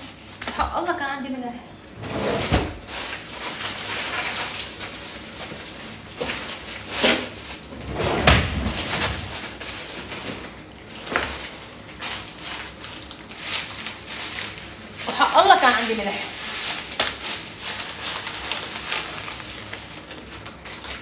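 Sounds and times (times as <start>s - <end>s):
cupboard doors and drawers opening: 2.0s - 2.9s, 7.8s - 9.3s.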